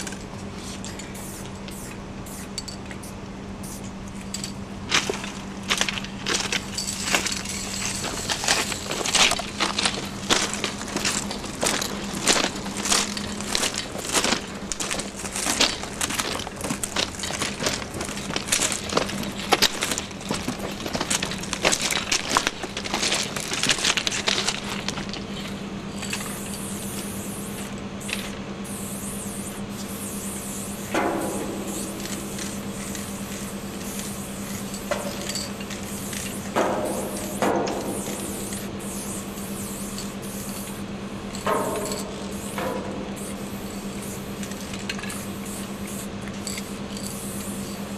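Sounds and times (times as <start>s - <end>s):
spray can hissing: 0.7s - 2.6s, 26.0s - 40.8s, 41.8s - 47.9s
footsteps crunching on gravel: 4.9s - 27.7s, 31.0s - 38.9s
knocks and rattles: 36.6s - 38.5s, 41.4s - 43.2s.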